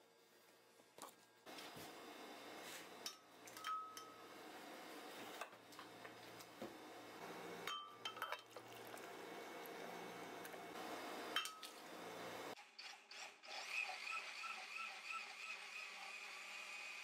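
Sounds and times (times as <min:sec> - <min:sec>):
spoon clinking on pot and glass: 0:03.0 - 0:04.2, 0:07.6 - 0:08.8, 0:11.4 - 0:11.8.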